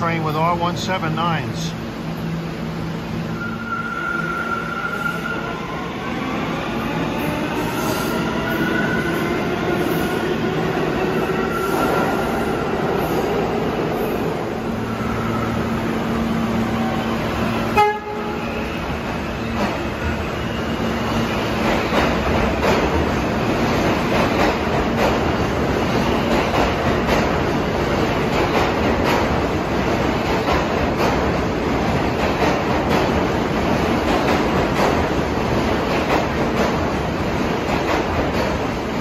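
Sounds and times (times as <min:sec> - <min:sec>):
train horn toot: 0:17.7 - 0:18.6.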